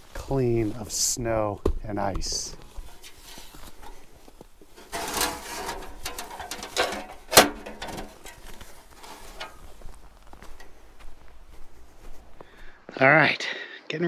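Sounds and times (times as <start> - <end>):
snow scraper rasping on van: 4.8 - 6.9.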